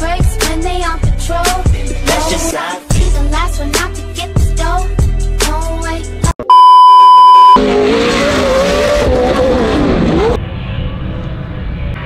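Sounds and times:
hip-hop music: 0:00.0 - 0:06.4
bleep tone: 0:06.4 - 0:07.6
race truck engine revving: 0:07.4 - 0:10.4.

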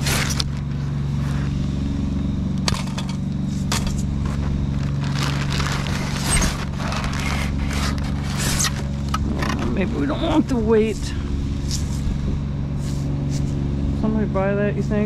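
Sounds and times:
truck engine idling: 0:00.0 - 0:15.0
junk clattering and rustling: 0:02.5 - 0:12.4.

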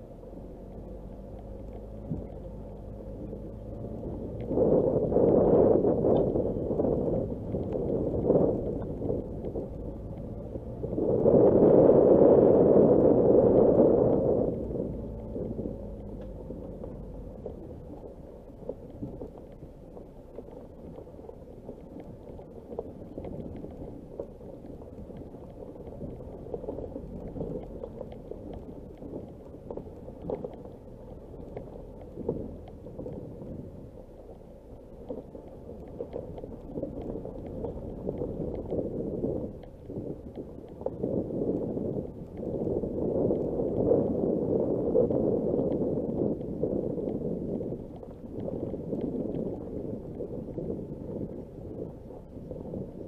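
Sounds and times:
car tyres rumbling on dirt track: 0:00.0 - 0:53.0
stones knocking under car: 0:14.5 - 0:34.4.

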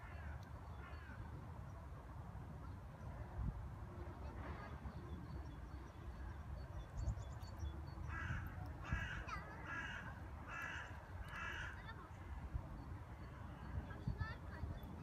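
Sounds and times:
crow cawing: 0:08.1 - 0:12.0.

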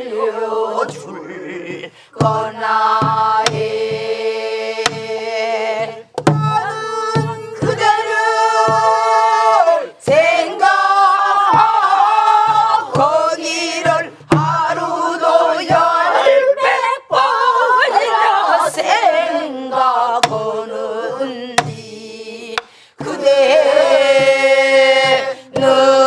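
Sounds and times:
group singing folk song in unison: 0:00.0 - 0:26.0
barrel drum strokes: 0:00.8 - 0:16.3, 0:20.2 - 0:20.6, 0:21.6 - 0:22.0.

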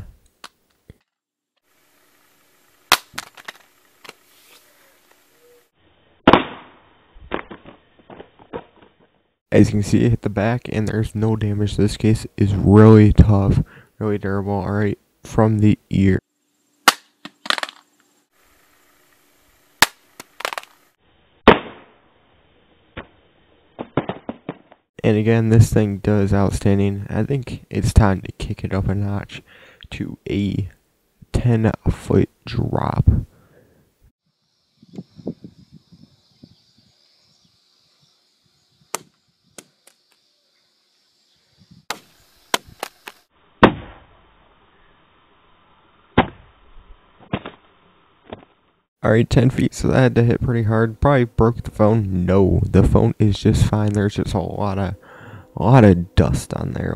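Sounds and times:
phone clattering on asphalt: 0:02.9 - 0:04.2, 0:17.2 - 0:17.9, 0:20.2 - 0:20.8
phone hitting concrete: 0:16.9 - 0:17.8, 0:19.8 - 0:20.7.

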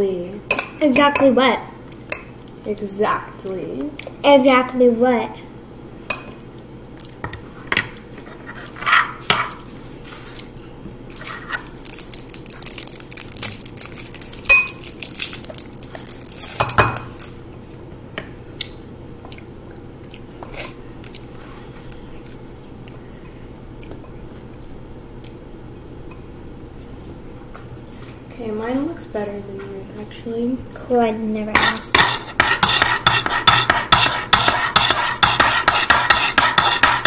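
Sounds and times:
metal spoons scraping wooden board: 0:31.6 - 0:37.0.

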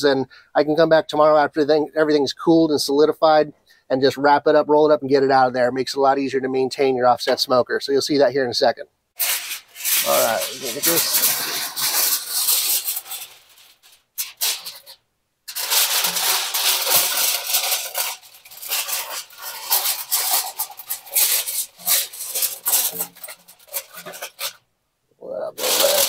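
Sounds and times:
aluminum foil crinkling: 0:09.2 - 0:24.6, 0:25.5 - 0:26.0.

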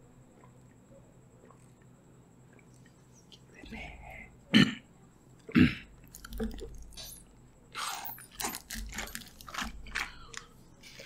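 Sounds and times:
carton crackling and crumpling: 0:08.3 - 0:11.0.

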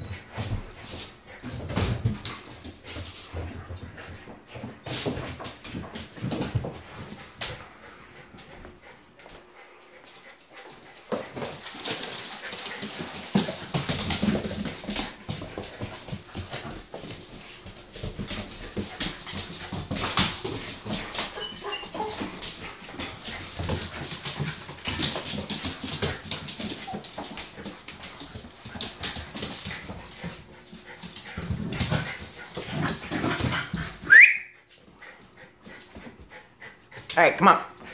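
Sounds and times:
dogs whining: 0:21.2 - 0:22.2, 0:34.0 - 0:34.6.

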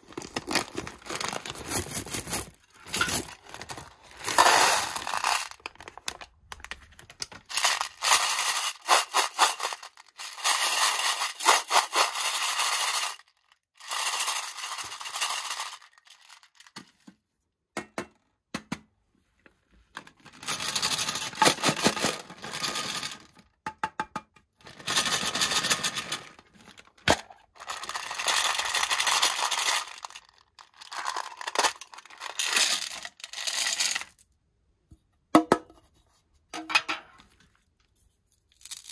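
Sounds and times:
candy pouring into a metal tin: 0:00.0 - 0:06.6, 0:07.2 - 0:16.8, 0:20.3 - 0:23.4, 0:24.7 - 0:26.4, 0:27.4 - 0:34.2, 0:38.5 - 0:38.9.

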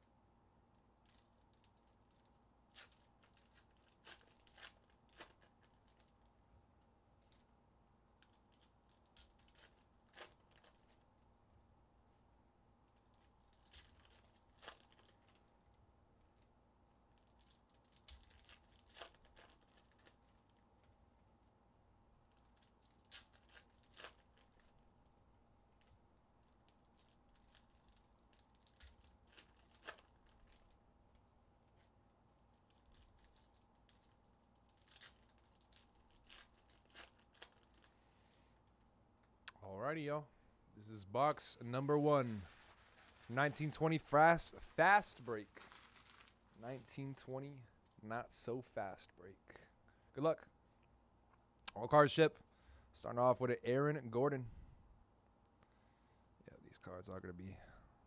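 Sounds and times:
faint steady hum: 0:00.0 - 0:58.0
wrappers crinkling and tearing: 0:01.0 - 0:06.2, 0:08.2 - 0:11.0, 0:12.9 - 0:15.5, 0:17.1 - 0:20.6, 0:22.2 - 0:24.8, 0:25.7 - 0:30.8, 0:31.6 - 0:38.2, 0:41.7 - 0:44.0, 0:44.9 - 0:47.2.

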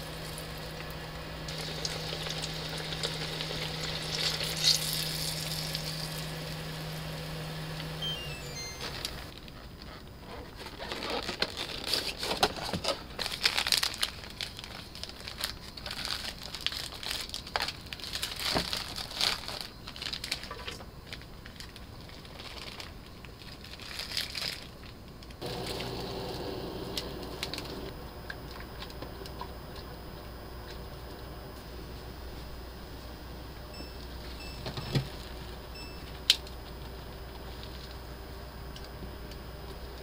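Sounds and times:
plastic packaging crinkling and tearing: 0:09.0 - 0:25.9, 0:27.0 - 0:27.8.

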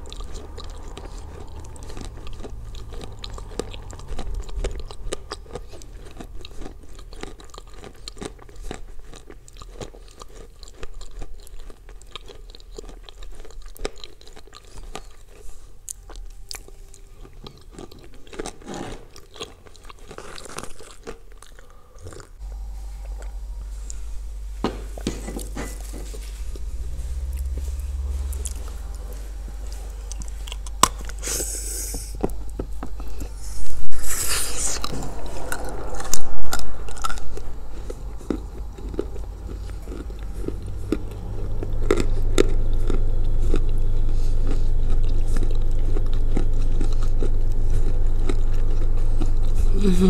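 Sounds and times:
steady low hum: 0:00.0 - 0:18.7, 0:21.7 - 0:50.0
crunching and chewing clay: 0:00.0 - 0:24.0, 0:37.9 - 0:49.8.

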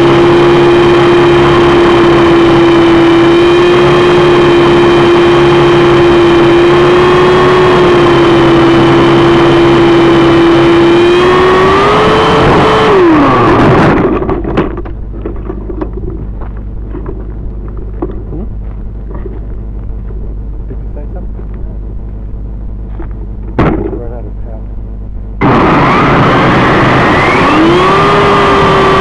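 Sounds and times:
model helicopter motor whining: 0:00.0 - 0:14.4
low rumble: 0:00.0 - 0:28.8.

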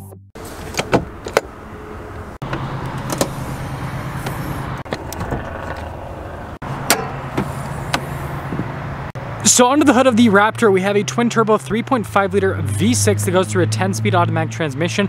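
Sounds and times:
hood latch clicks and clunks: 0:00.6 - 0:01.6, 0:02.2 - 0:03.4, 0:04.2 - 0:06.0, 0:06.7 - 0:08.8.

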